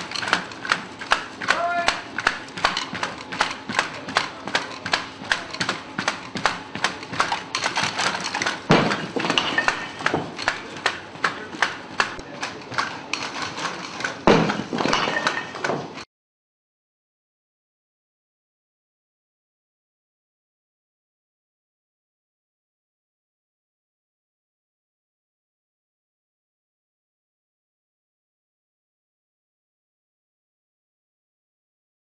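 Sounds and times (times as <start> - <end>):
robot metal feet clattering: 0.0 - 16.0
heavy thud: 8.6 - 10.4.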